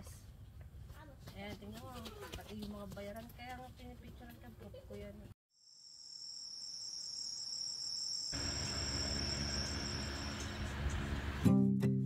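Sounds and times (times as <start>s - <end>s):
crickets trilling: 5.6s - 11.1s.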